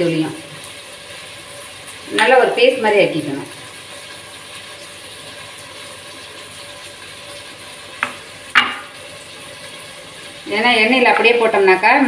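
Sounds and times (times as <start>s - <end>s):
sharp knocks: 8.0s - 8.9s.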